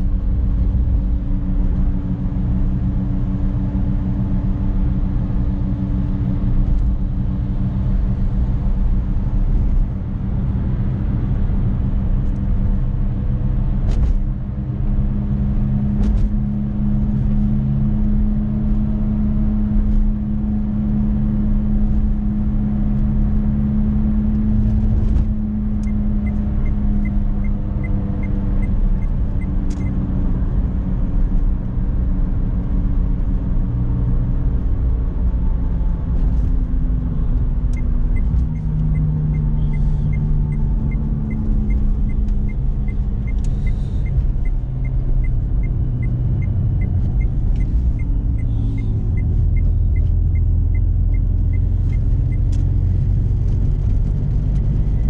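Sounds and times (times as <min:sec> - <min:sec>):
car engine in cabin: 0:00.0 - 0:55.0
turn signal ticking: 0:25.4 - 0:30.0, 0:37.4 - 0:55.0.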